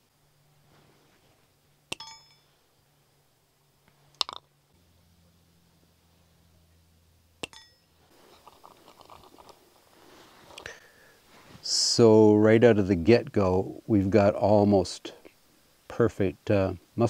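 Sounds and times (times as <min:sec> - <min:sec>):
metallic clinks with ring: 0:02.0 - 0:02.5, 0:07.5 - 0:07.9.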